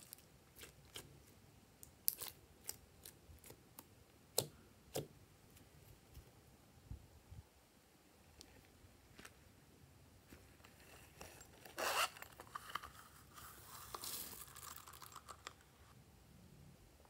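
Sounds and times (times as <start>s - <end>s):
rustling bag: 10.3s - 15.6s.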